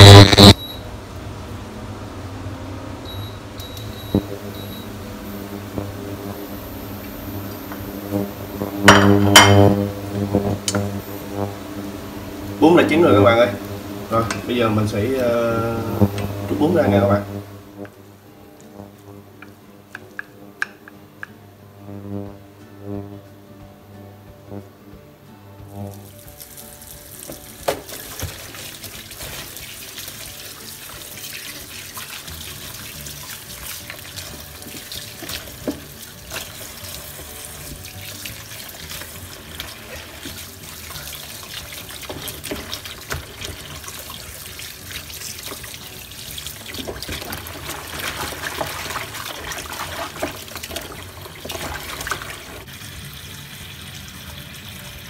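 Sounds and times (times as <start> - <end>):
tap water running into basin: 26.0 - 55.0
hands rubbing vegetables in water: 26.1 - 52.6.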